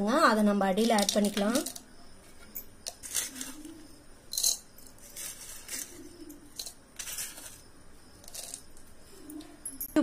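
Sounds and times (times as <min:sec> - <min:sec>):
metal scraping against glass: 0:00.9 - 0:08.8.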